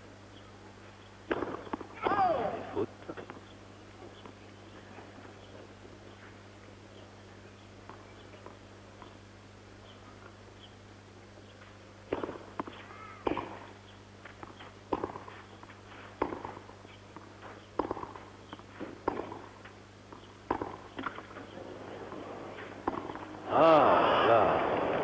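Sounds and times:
steady low hum: 0.0 - 25.0
tennis ball bouncing on clay: 1.3 - 1.9, 12.1 - 23.3
racket striking tennis ball: 1.3 - 2.6, 12.1 - 13.7, 14.4 - 15.4, 16.2 - 16.6, 17.8 - 18.2, 18.8 - 19.5, 20.5 - 21.4, 22.6 - 23.2.

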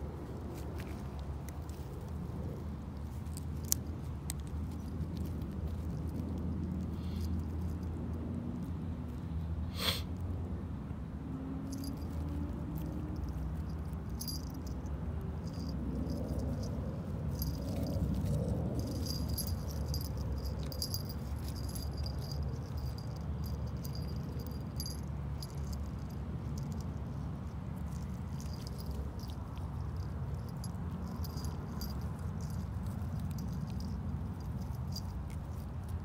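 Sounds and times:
collar tags jingling: 3.1 - 9.2, 11.6 - 36.0
steady low hum: 12.8 - 36.0.

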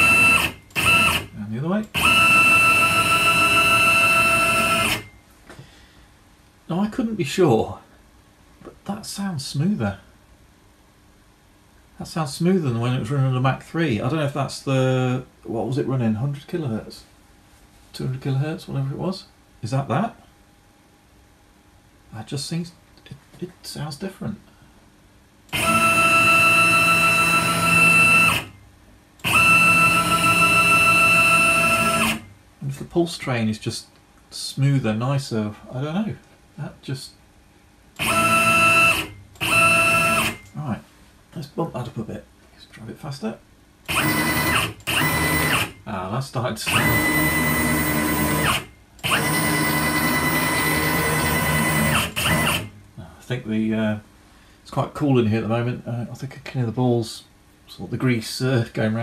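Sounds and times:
stepper motor whine: 0.0 - 1.4, 2.0 - 5.1, 25.5 - 28.6, 29.2 - 32.3, 38.0 - 40.5, 43.9 - 45.8, 46.7 - 52.7.

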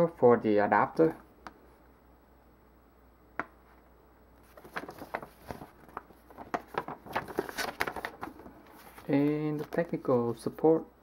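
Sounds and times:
paper rustling and crackling: 4.4 - 10.4.

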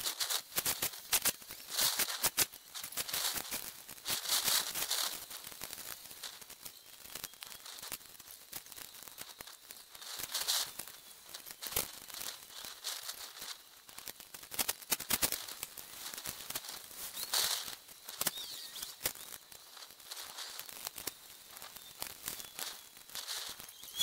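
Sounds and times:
rustling: 0.0 - 24.0
faint bird chirps: 17.1 - 19.4, 21.6 - 24.0.

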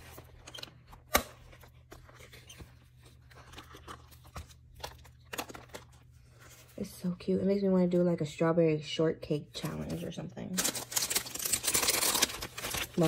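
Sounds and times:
paper and plastic rustling: 0.0 - 7.1, 9.6 - 13.0.

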